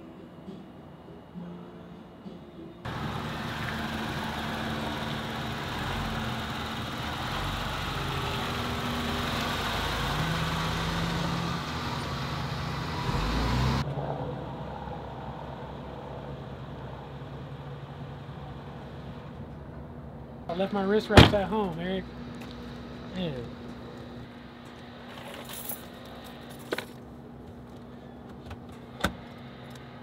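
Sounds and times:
car engine running: 0:02.9 - 0:13.8.

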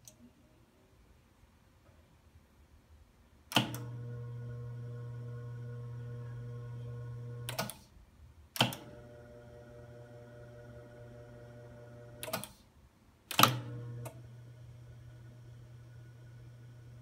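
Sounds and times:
tape deck motor hum: 0:03.6 - 0:07.7, 0:08.6 - 0:12.4, 0:13.4 - 0:17.0.

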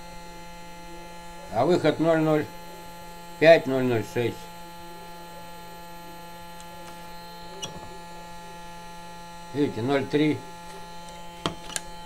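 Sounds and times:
electric motor humming: 0:02.4 - 0:12.0.

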